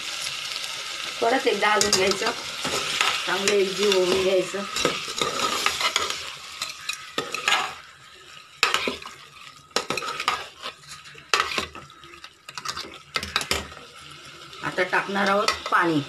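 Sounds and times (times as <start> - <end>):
food sizzling in oil: 0.0 - 16.0
metal utensils scraping a pot: 1.7 - 7.8, 8.6 - 13.9.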